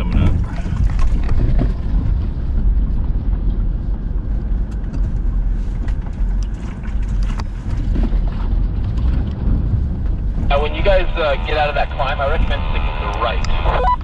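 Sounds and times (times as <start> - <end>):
off-road vehicle engine rumble: 0.0 - 14.0.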